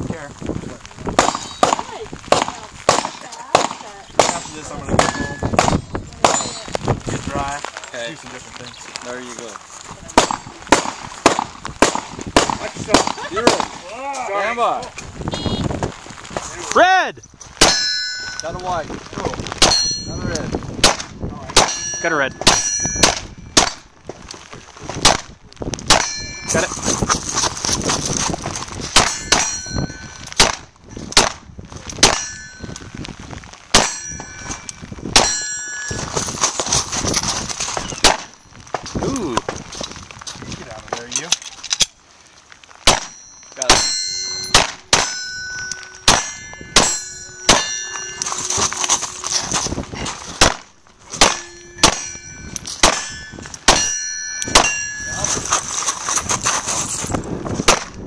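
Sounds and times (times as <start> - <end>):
pistol shots: 1.2 - 6.5, 20.8 - 21.8, 25.9 - 26.2, 30.4 - 30.6, 32.0 - 32.3, 33.7 - 34.0, 38.0 - 38.3, 42.8 - 45.2, 46.0 - 47.9, 50.4 - 52.1, 52.8 - 53.9
steel plate target clanging: 17.6 - 18.6, 21.6 - 23.8, 25.9 - 27.1, 29.0 - 30.3, 32.0 - 32.8, 33.8 - 36.9, 42.9 - 49.7, 50.3 - 56.6.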